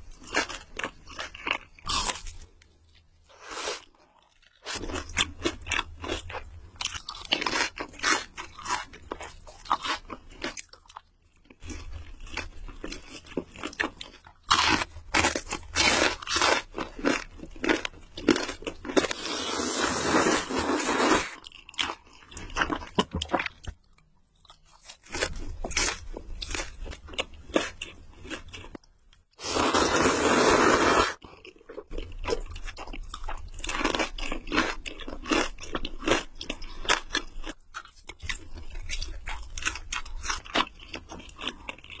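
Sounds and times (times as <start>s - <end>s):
crunchy chewing: 0.1s - 19.8s, 31.2s - 42.0s.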